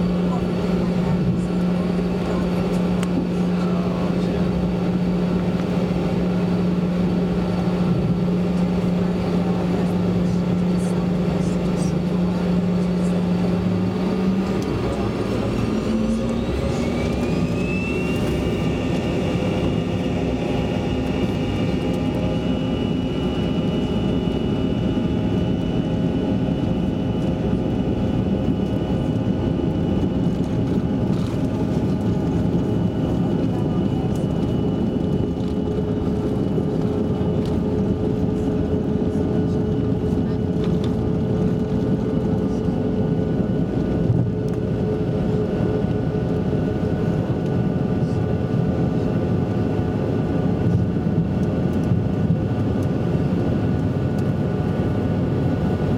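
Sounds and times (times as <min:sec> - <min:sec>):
jet engines whining at takeoff: 0:00.0 - 0:55.9.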